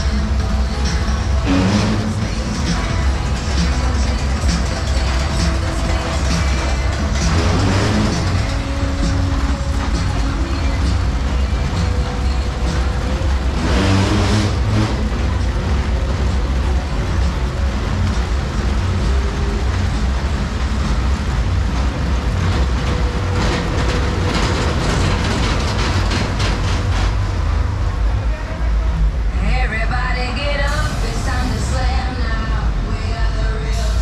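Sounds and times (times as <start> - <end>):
loud low rumble: 0.0 - 34.0
rush of noise: 0.0 - 34.0
sharp clicks and rattles: 2.0 - 27.6.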